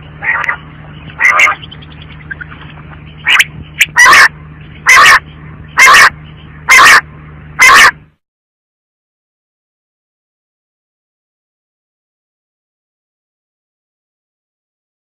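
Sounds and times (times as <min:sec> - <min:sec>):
quail calling: 0:00.0 - 0:05.2, 0:05.8 - 0:07.0, 0:07.6 - 0:08.0
steady low hum: 0:00.0 - 0:08.2.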